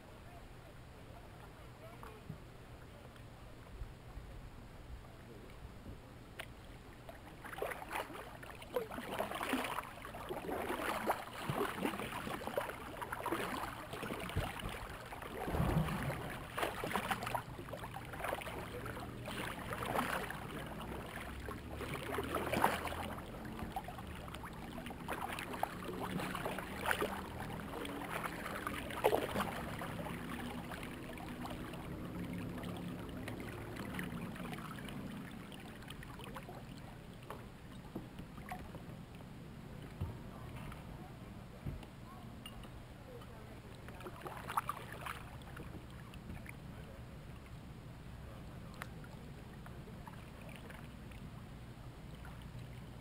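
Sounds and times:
light wash of water: 0:00.0 - 0:53.0
kayak paddle strokes in water: 0:05.5 - 0:39.1, 0:43.7 - 0:47.0, 0:48.7 - 0:51.3.

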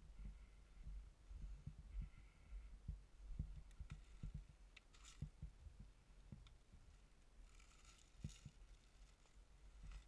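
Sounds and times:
faint low thuds: 0:00.0 - 0:07.0.

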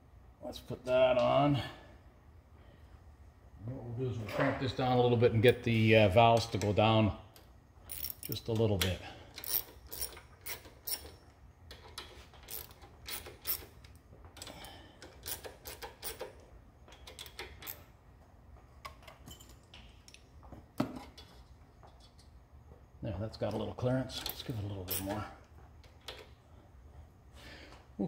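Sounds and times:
ratchet wrench clicking: 0:09.4 - 0:16.3.

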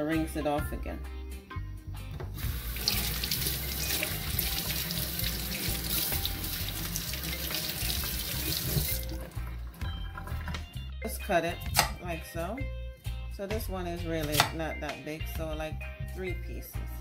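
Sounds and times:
tap water splashing into sink: 0:02.4 - 0:09.4.

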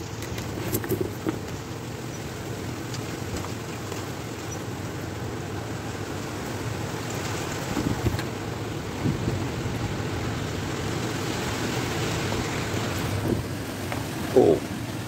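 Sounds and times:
light rain falling: 0:00.0 - 0:15.0
wind gusting through trees: 0:00.0 - 0:15.0.

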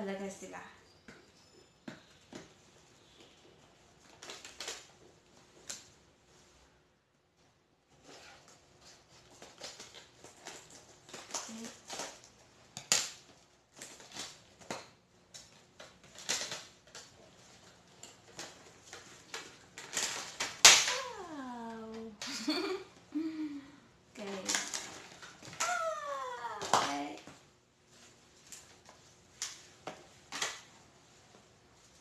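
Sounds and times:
plastic packaging crackling: 0:03.0 - 0:05.9, 0:08.3 - 0:22.0.

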